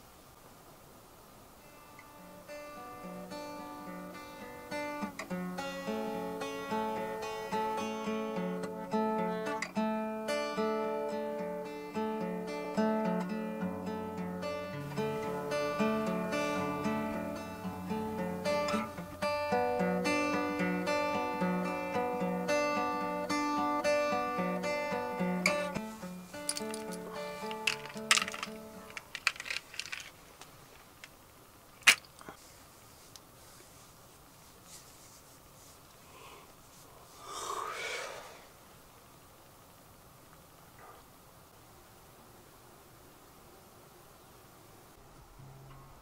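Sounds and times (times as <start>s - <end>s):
acoustic guitar picking: 1.7s - 29.6s.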